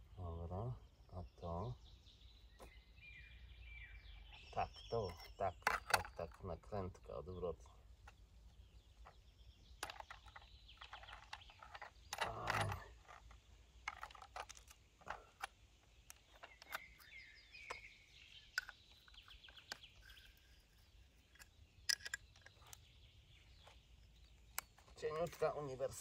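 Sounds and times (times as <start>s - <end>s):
small birds chirping: 0.0s - 26.0s
metallic clicks and clinks: 5.0s - 6.5s, 9.8s - 17.9s, 18.5s - 22.8s
metal rattle: 9.8s - 17.9s.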